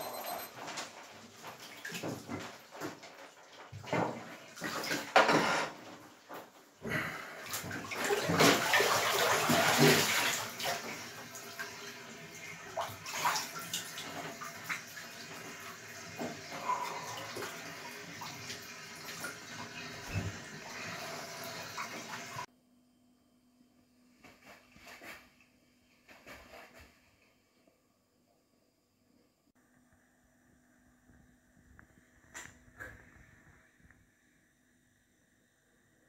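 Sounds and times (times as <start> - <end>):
water sloshing and splashing: 0.7 - 22.5.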